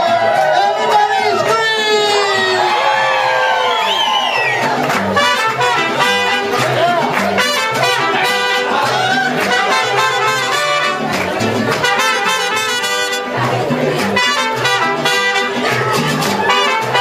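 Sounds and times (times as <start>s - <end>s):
strummed guitars: 0.0s - 3.2s, 4.0s - 17.0s
rhythmic bass line: 4.5s - 17.0s
trumpets: 5.0s - 17.0s.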